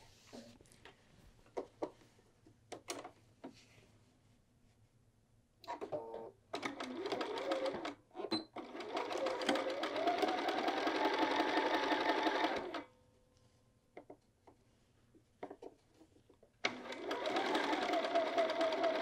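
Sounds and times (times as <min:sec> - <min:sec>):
sewing machine stitching: 0:05.8 - 0:12.8, 0:16.6 - 0:19.0.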